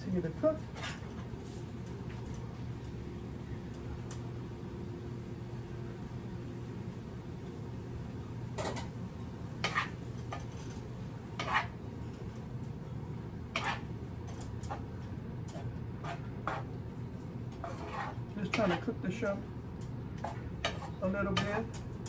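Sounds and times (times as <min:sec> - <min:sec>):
wooden spatula scraping a skillet: 0:09.6 - 0:10.5, 0:11.4 - 0:11.8, 0:13.6 - 0:13.9, 0:15.6 - 0:16.7, 0:17.5 - 0:19.0, 0:20.2 - 0:21.6.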